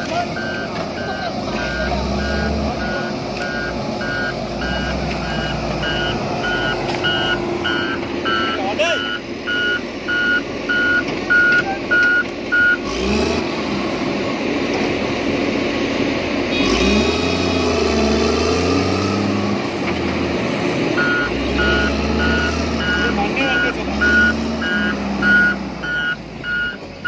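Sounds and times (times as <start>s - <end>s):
diesel engine: 0.0s - 27.0s
reversing alarm beeping: 0.3s - 12.8s, 21.0s - 26.8s.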